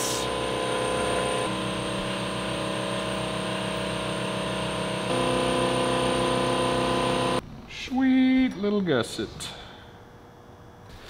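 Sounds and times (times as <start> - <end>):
electric power tool humming: 0.0 - 7.4.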